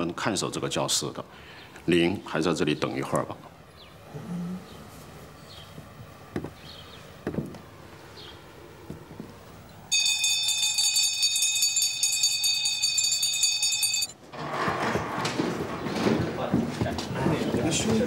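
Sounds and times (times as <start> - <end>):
handbell ringing: 9.9 - 14.2.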